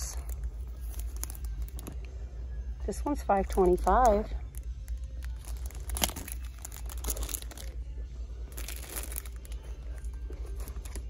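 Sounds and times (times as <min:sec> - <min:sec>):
plastic packaging crinkling: 0:00.1 - 0:02.0, 0:03.4 - 0:07.9, 0:08.5 - 0:11.0.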